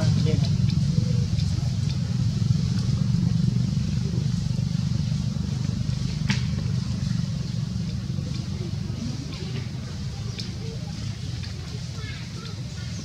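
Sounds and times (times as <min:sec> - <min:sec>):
low rumble: 0:00.0 - 0:10.2.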